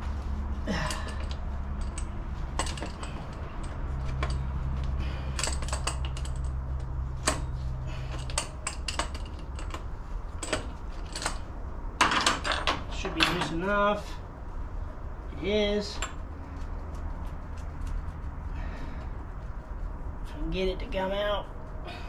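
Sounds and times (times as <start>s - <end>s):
steady low hum: 0.0s - 22.0s
wrench clinking on metal fitting: 0.8s - 4.5s, 5.3s - 6.6s, 8.2s - 13.6s
metal clatter: 0.8s - 13.6s.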